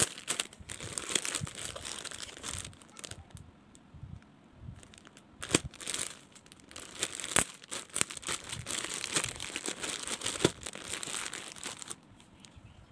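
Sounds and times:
plastic bags crinkling: 0.0s - 3.4s, 4.8s - 12.5s
plastic snapping: 5.4s - 6.1s, 6.8s - 10.9s.

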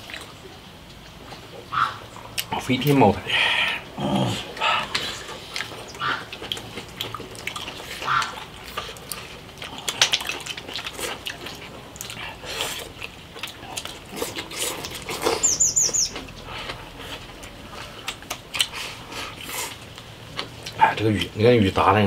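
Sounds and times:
chewing: 0.0s - 21.8s
slurping: 3.2s - 21.5s
high chirps: 15.2s - 16.3s.

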